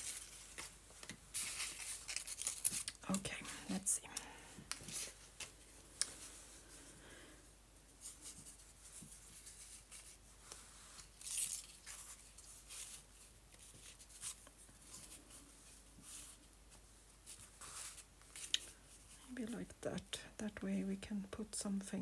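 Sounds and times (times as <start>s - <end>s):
paper rustling and rubbing: 0.0s - 3.0s, 7.9s - 19.2s.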